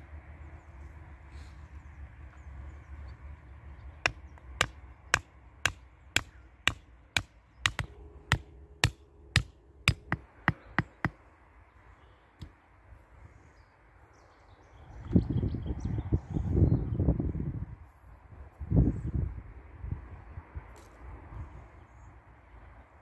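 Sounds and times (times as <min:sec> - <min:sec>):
hammer knocking wooden stake: 0:04.0 - 0:11.2.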